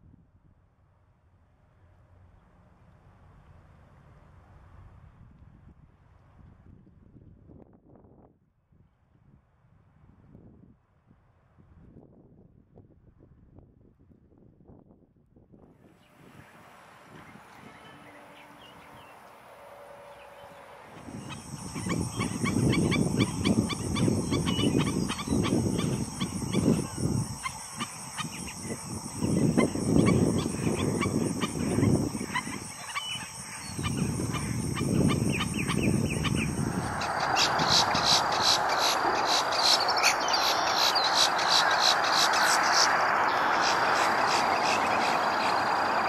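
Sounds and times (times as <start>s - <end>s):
steady high whine: 16.2s - 46.0s
birds yipping: 20.2s - 46.0s
gusty low rumble: 33.6s - 46.0s.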